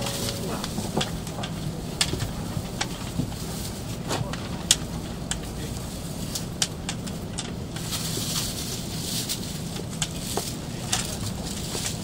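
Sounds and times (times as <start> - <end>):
footsteps: 0.0 - 1.6
rolling suitcase wheels: 0.0 - 3.4
steady low hum: 0.0 - 7.8.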